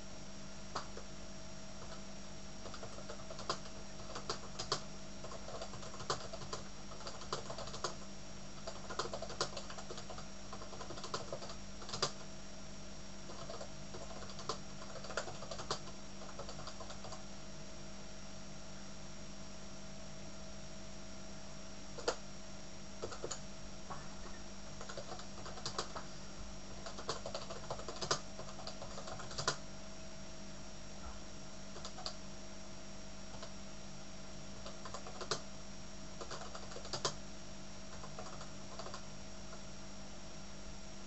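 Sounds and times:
steady hum: 0:00.0 - 0:41.0
typing on computer keyboard: 0:00.8 - 0:01.0, 0:01.8 - 0:02.0, 0:02.6 - 0:08.0, 0:08.6 - 0:12.2, 0:13.3 - 0:17.2, 0:22.0 - 0:22.2, 0:23.0 - 0:23.4, 0:24.8 - 0:26.0, 0:26.8 - 0:29.6, 0:31.8 - 0:32.2, 0:33.3 - 0:33.5, 0:34.6 - 0:35.4, 0:36.2 - 0:37.2, 0:37.9 - 0:39.0.

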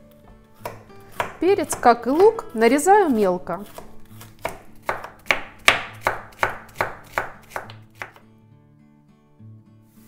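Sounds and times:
knife chopping on cutting board: 0:00.6 - 0:08.2.

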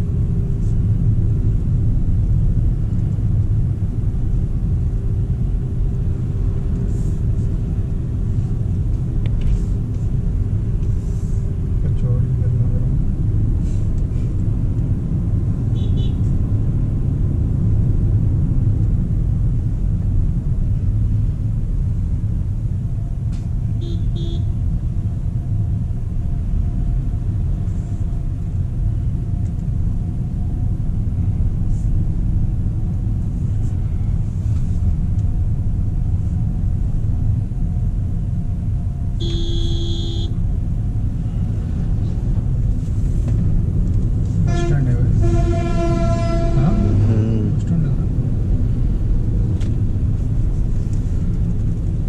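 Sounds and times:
road and tyre rumble: 0:00.0 - 0:52.0
vehicle horn: 0:15.8 - 0:16.3, 0:23.8 - 0:24.6, 0:39.2 - 0:40.4, 0:44.5 - 0:47.1
short beep: 0:39.2 - 0:40.3.

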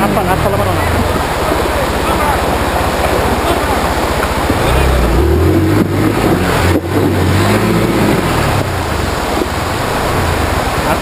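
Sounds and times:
motorcycle engine running: 0:00.0 - 0:11.0
river water rushing over rocks: 0:00.0 - 0:11.0.

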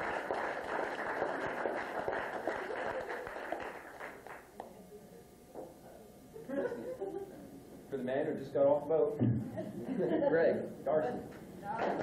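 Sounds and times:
guests applauding: 0:00.0 - 0:04.5.

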